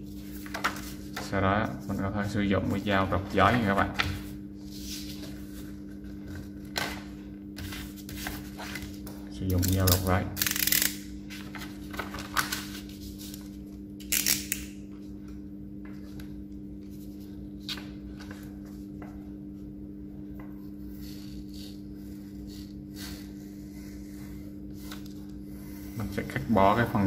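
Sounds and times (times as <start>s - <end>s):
steady low hum: 0.0s - 27.0s
paper rustling: 11.3s - 13.6s.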